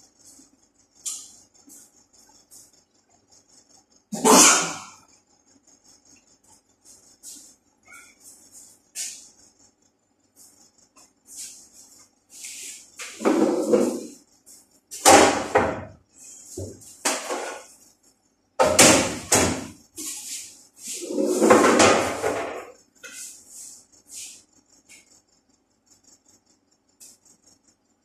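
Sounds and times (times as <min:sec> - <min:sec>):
metal trays clattering on counters: 0:18.6 - 0:19.8, 0:21.0 - 0:22.8.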